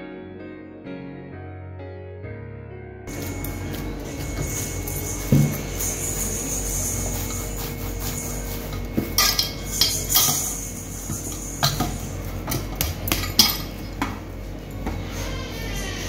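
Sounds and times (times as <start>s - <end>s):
knocks and clinks of metal bowl: 8.7s - 15.0s.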